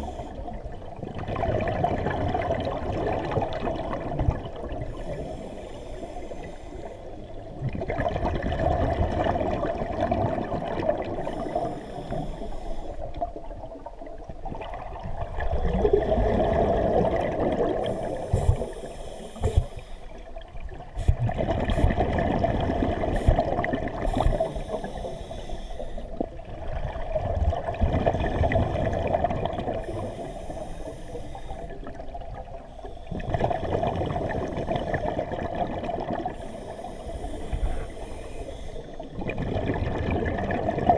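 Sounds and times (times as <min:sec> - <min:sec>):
regulator inhalation hiss: 0:05.0 - 0:07.1, 0:11.3 - 0:13.0, 0:17.8 - 0:20.2, 0:24.1 - 0:26.2, 0:29.8 - 0:31.8, 0:36.4 - 0:39.1
diver exhaling bubbles underwater: 0:14.5 - 0:18.7, 0:21.1 - 0:24.6, 0:39.1 - 0:40.9.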